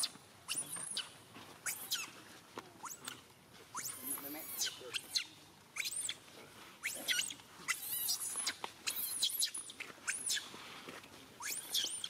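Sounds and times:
young monkey screaming: 0.0s - 2.2s, 2.8s - 3.1s, 3.7s - 6.2s, 6.8s - 10.5s, 11.4s - 12.0s.

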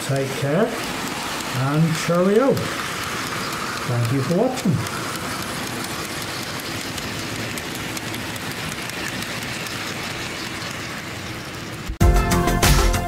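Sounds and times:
model wagons rolling on track: 0.0s - 12.0s.

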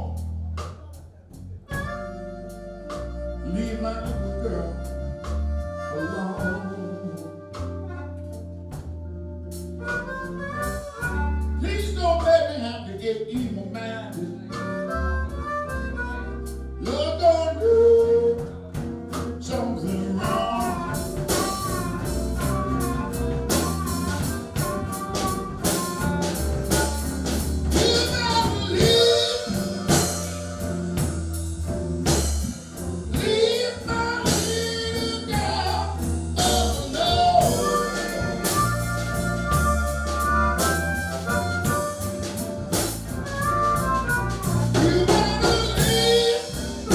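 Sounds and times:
man singing into a microphone: 3.4s - 7.8s, 11.6s - 15.0s, 16.8s - 21.8s, 27.6s - 30.2s, 33.1s - 38.7s, 44.4s - 46.9s
electric guitar: 14.2s - 46.9s.

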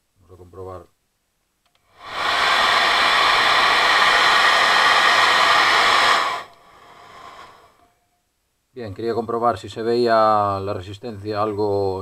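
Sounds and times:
hair dryer running: 2.0s - 7.8s.

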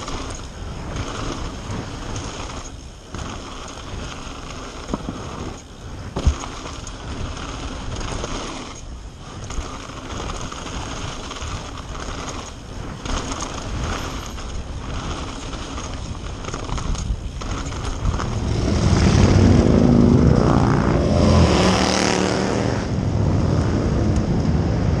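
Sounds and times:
bike rattling knocks: 0.0s - 18.7s
bike tyre roar on gravel: 0.0s - 25.0s
motorcycle engines: 0.0s - 25.0s
wind on microphone: 10.4s - 25.0s.

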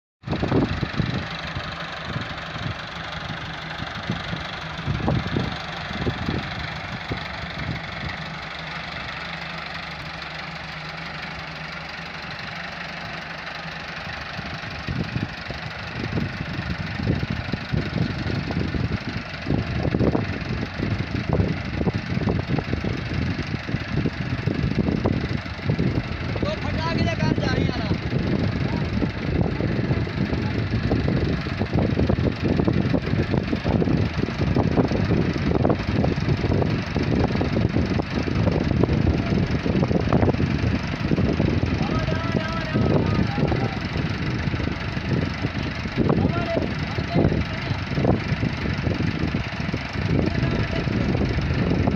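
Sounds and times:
tractor diesel engine: 0.2s - 51.9s.

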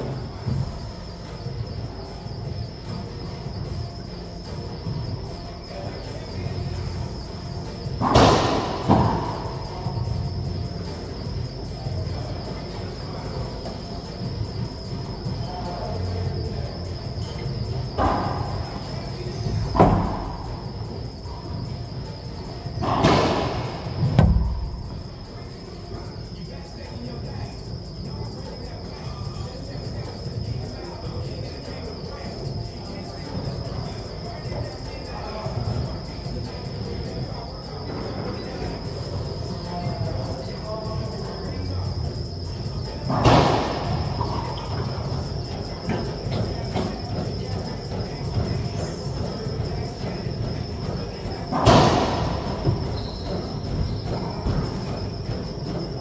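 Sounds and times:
high-pitched whine: 0.0s - 56.0s
racquetball striking wall: 22.8s - 25.0s
hollow booming court ring: 22.8s - 25.7s.

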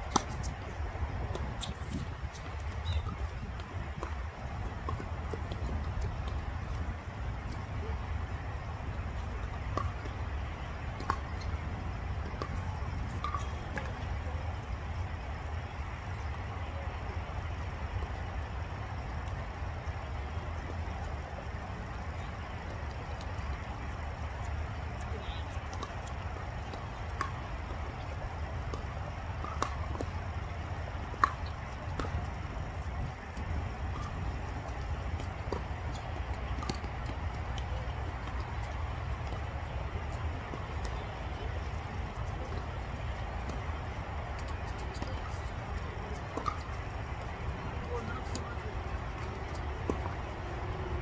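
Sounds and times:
low outdoor rumble: 0.0s - 51.0s
tennis ball hit and bouncing: 0.1s - 0.6s, 1.3s - 4.2s, 9.7s - 10.1s, 10.9s - 11.6s, 12.2s - 14.4s, 25.0s - 32.5s, 33.4s - 39.4s, 44.3s - 51.0s.

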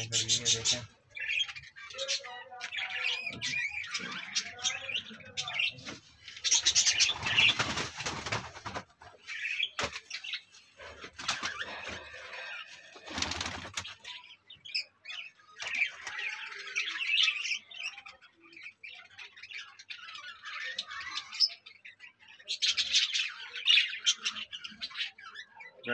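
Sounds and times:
birds chirping: 0.0s - 25.9s
doves flapping wings: 6.8s - 9.2s, 13.0s - 14.0s.

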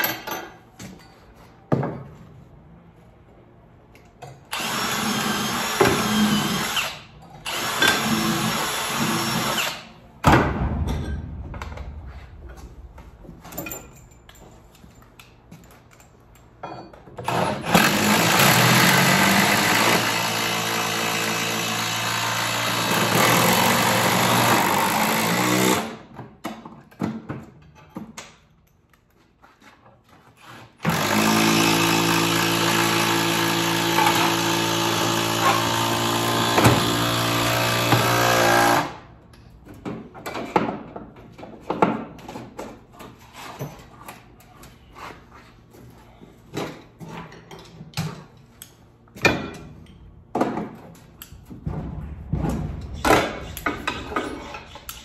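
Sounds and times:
tools clicking and knocking: 0.0s - 1.2s, 46.5s - 55.0s
cordless drill driving screws: 4.5s - 9.9s, 30.8s - 38.9s.

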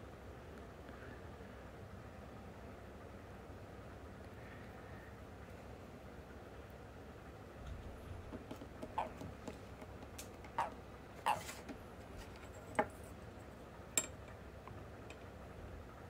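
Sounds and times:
hands tapping and clicking: 8.3s - 10.8s.

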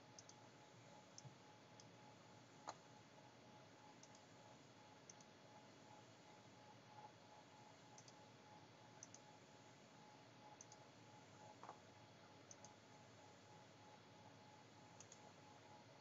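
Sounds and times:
faint steady hum: 0.0s - 16.0s
computer mouse clicks: 0.2s - 0.4s, 1.1s - 2.0s, 2.6s - 2.8s, 4.0s - 4.3s, 5.1s - 5.3s, 7.9s - 8.2s, 9.0s - 9.3s, 10.5s - 10.9s, 11.5s - 11.8s, 12.5s - 12.8s, 15.0s - 15.3s.

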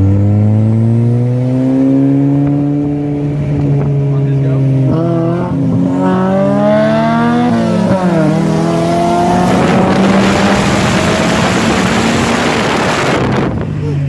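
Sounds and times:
car engine accelerating hard: 0.0s - 14.0s
loud rushing wind: 4.7s - 13.8s.

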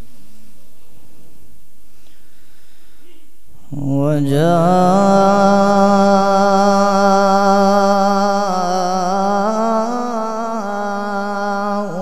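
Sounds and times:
man reciting in long melodic note: 3.6s - 12.0s.

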